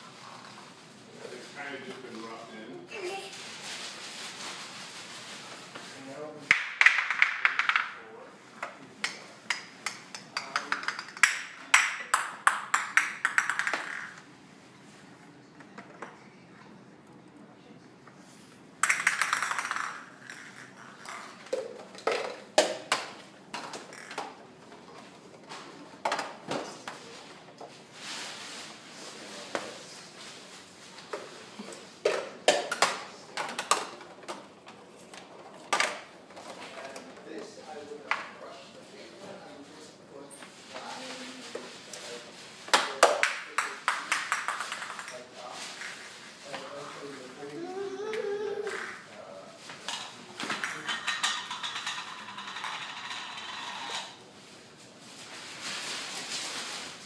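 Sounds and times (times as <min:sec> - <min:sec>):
plastic balls clattering down ramps: 0:06.5 - 0:08.1, 0:10.3 - 0:14.3, 0:18.8 - 0:24.4, 0:32.1 - 0:34.4, 0:42.7 - 0:46.1, 0:49.9 - 0:54.2.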